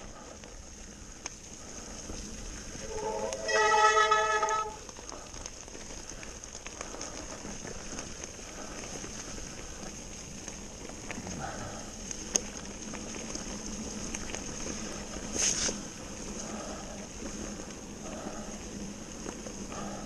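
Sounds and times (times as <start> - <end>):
bike tyres rolling over leaves: 0.0 - 20.0
loud pitched squeal: 2.8 - 4.8.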